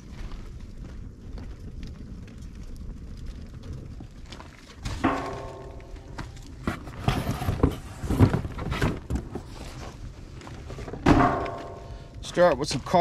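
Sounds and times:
footsteps on gravel: 0.0 - 8.5
knocks and crackles: 0.0 - 13.0.

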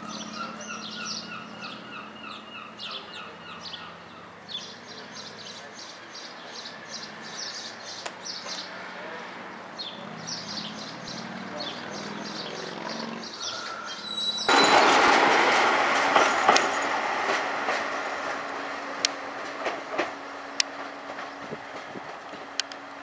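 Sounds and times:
train rumble: 8.4 - 23.0
wheels clicking over rail joints: 14.0 - 23.0.

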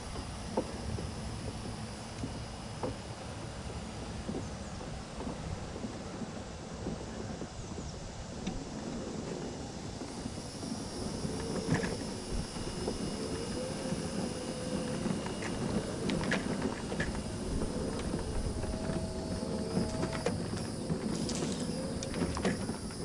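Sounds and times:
electric scooter motor whining: 0.0 - 23.0
clicks and knocks from bumpy ride: 10.2 - 23.0.

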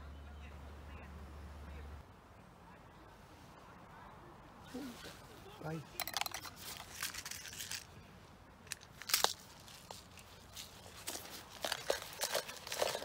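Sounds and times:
crinkling and crunching: 6.0 - 7.9, 8.7 - 13.0.

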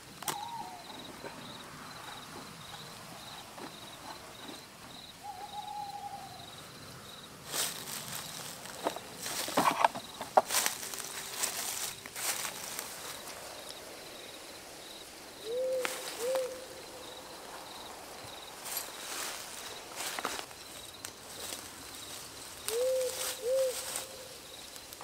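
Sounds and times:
owl hooting: 0.2 - 2.8, 5.2 - 6.5, 15.4 - 17.2, 22.6 - 24.5
insect chirring: 0.2 - 25.0
saddle straps and bags rustling: 7.5 - 13.4.

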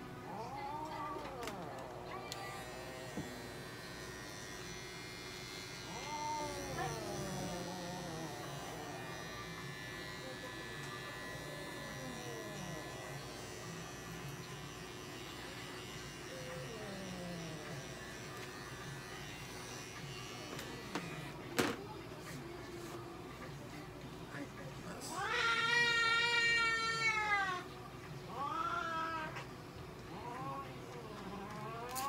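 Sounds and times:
electric pet clipper buzzing: 0.8 - 21.8
cat yowling: 5.9 - 9.1, 25.2 - 27.7.

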